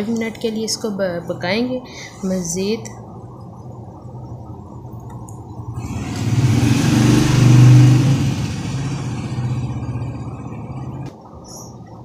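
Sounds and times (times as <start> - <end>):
engine hum: 3.1 - 12.0.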